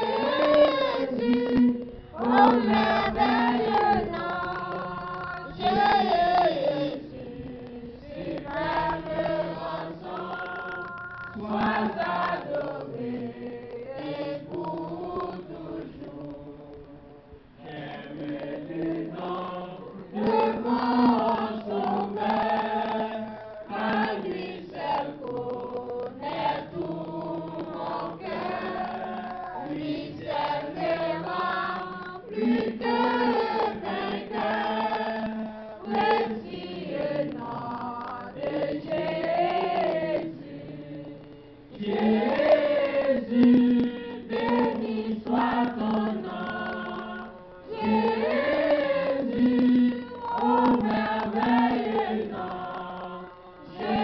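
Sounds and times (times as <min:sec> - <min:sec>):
congregation singing: 0:00.0 - 0:54.0.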